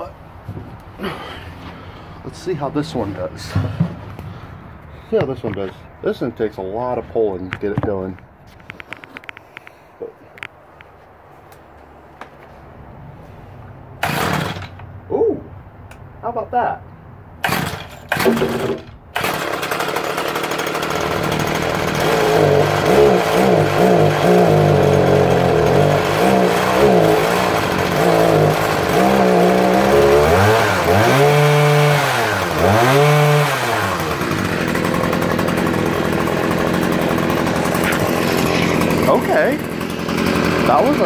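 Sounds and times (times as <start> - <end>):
hedge trimmer engine revving: 14.0 - 14.8, 17.4 - 41.0.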